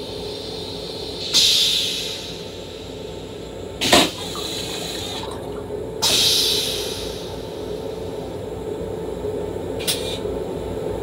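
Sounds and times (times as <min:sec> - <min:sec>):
train toilet flushing: 0:00.0 - 0:08.4
moving railcar hum: 0:00.0 - 0:11.0
rinse water hissing: 0:03.8 - 0:07.3.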